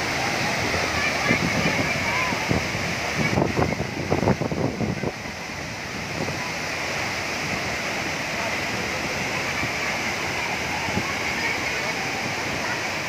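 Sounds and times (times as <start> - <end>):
waterfall roar: 0.0 - 13.0.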